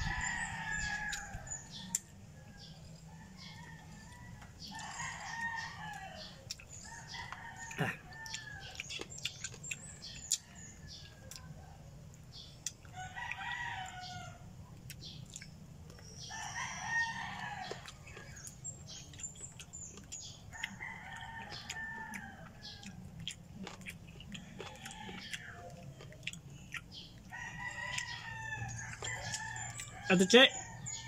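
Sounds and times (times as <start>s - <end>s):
distant roosters crowing: 0.0s - 9.1s, 9.7s - 14.6s, 16.0s - 31.0s
small eating clicks: 0.2s - 31.0s.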